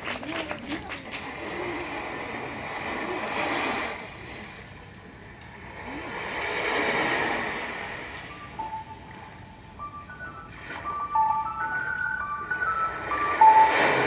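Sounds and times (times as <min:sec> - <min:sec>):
held keyboard note: 0:08.3 - 0:14.0.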